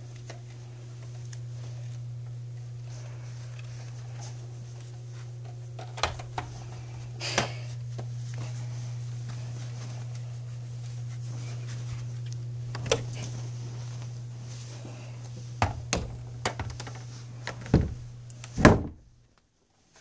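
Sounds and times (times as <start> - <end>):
steady low hum: 0.0 - 19.4
door shutting thud: 5.8 - 6.5, 17.6 - 19.1
door knocks and bumps: 17.7 - 19.1.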